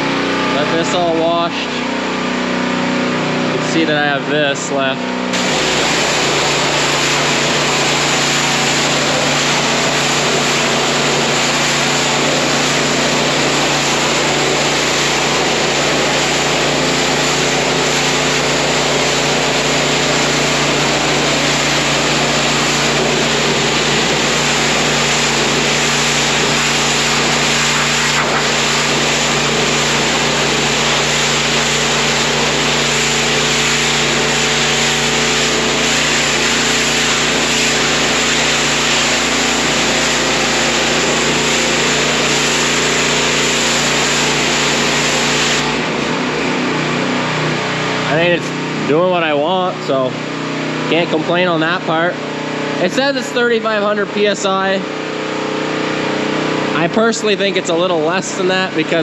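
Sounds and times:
pressure washer engine running: 0.0 - 59.0
high-pressure water spray hiss: 5.4 - 45.8.

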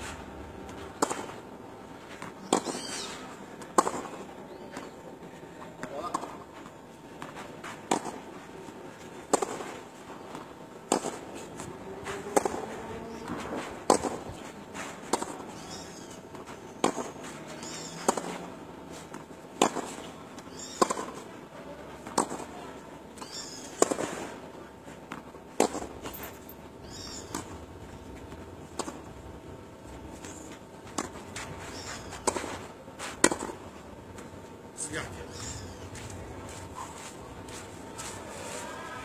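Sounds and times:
tennis racquets striking ball: 0.7 - 1.4, 2.2 - 5.0, 7.7 - 8.3, 9.2 - 21.3, 22.0 - 22.6, 23.2 - 24.4, 25.1 - 27.6, 28.7 - 29.1, 30.0 - 34.3.

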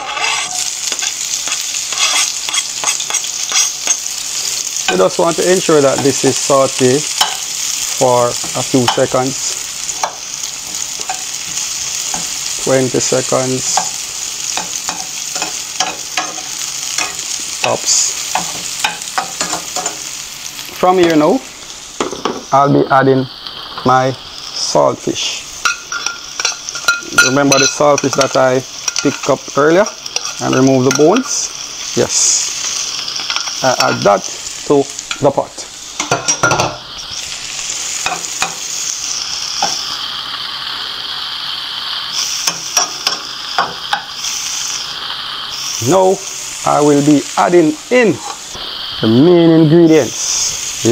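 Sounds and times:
spatula scraping a pan: 0.0 - 5.0
metal spoon scraping a pan: 0.0 - 5.1, 7.0 - 7.8, 9.9 - 12.5, 13.1 - 20.1, 25.6 - 31.4, 32.7 - 34.2
onion and garlic sizzling in oil: 0.0 - 50.9.

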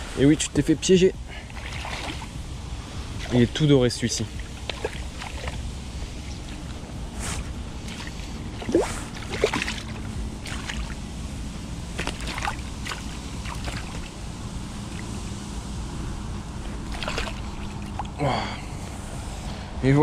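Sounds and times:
water sloshing and splashing: 1.3 - 11.1, 11.9 - 15.3, 16.6 - 18.2.

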